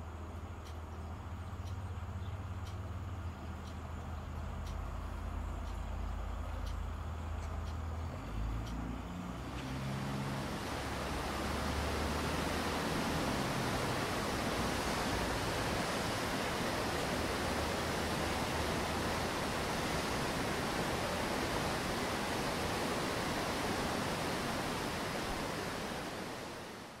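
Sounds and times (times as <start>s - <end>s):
water rushing down stone steps: 10.1s - 26.9s.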